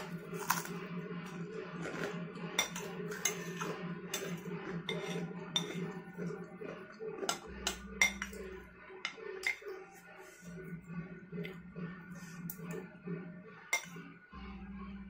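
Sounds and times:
metal spoon clinking on glass bowl: 0:02.6 - 0:05.9, 0:07.2 - 0:08.4, 0:09.4 - 0:09.7.

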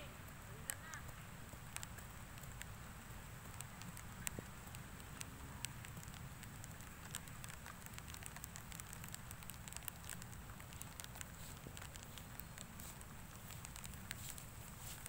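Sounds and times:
weeds crackling and popping: 0:00.0 - 0:15.0.

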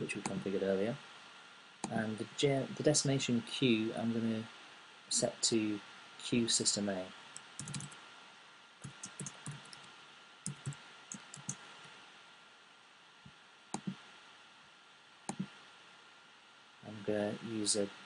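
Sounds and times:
keyboard typing: 0:07.6 - 0:08.0, 0:08.8 - 0:09.9, 0:10.5 - 0:11.6, 0:13.8 - 0:14.0, 0:15.3 - 0:15.5.

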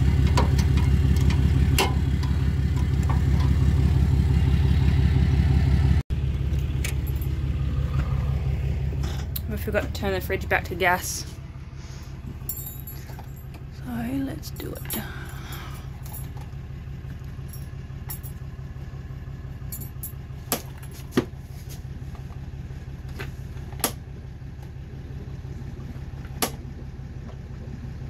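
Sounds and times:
low engine-like hum: 0:00.0 - 0:28.0.

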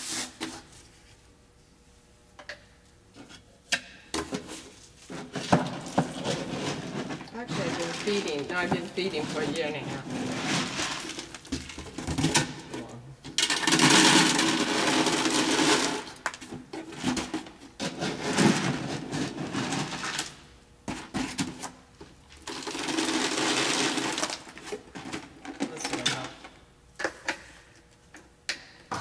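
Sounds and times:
kibble pouring into container: 0:13.5 - 0:16.0, 0:22.4 - 0:24.5.

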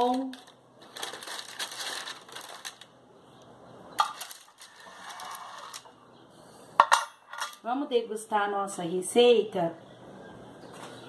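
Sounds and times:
parchment paper rustling: 0:00.0 - 0:03.0.

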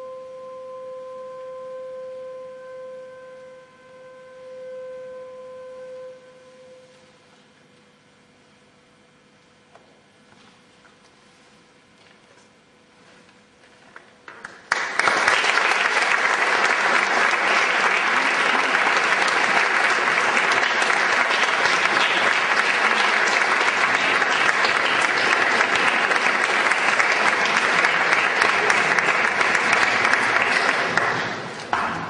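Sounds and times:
audience applause: 0:14.3 - 0:32.0.

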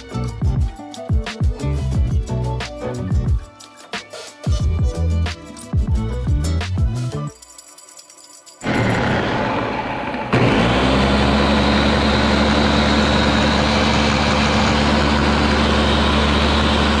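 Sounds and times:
blender motor running: 0:08.6 - 0:17.0.

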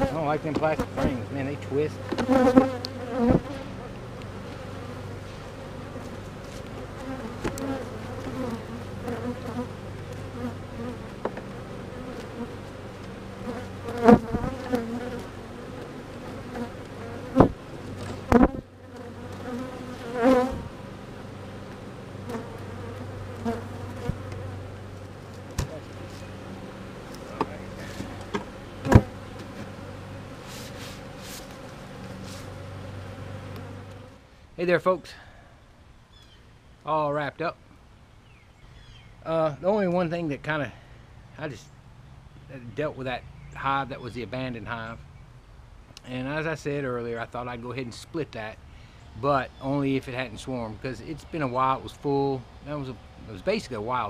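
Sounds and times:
honeybees buzzing: 0:00.0 - 0:34.3
hive tool knocking and scraping: 0:02.0 - 0:03.6, 0:06.0 - 0:08.6, 0:27.2 - 0:29.8.

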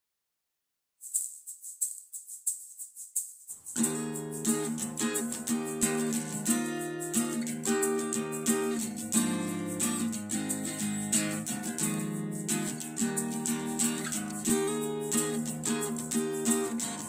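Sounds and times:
acoustic guitar strumming: 0:03.7 - 0:17.0.

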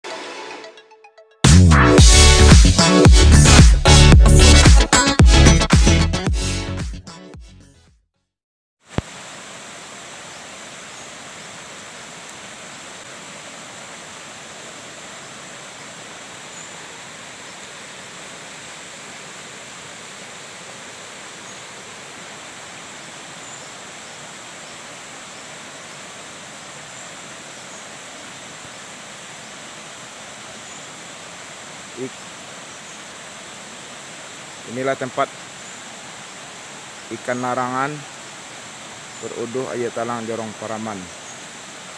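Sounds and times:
stream flowing over rocks: 0:08.8 - 0:41.9.

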